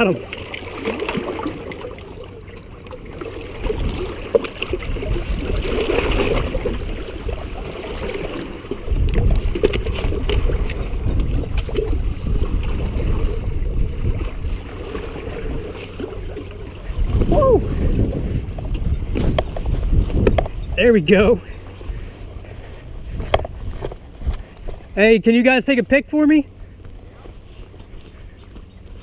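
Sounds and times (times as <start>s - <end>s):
water splashing against rocks: 0.0s - 20.6s
low wind rumble on microphone: 3.4s - 25.2s.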